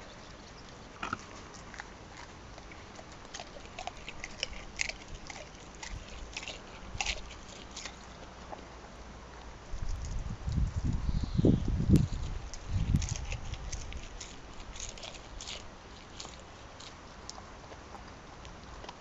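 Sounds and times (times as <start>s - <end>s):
dog crunching eggshell: 1.0s - 8.7s, 11.9s - 17.8s.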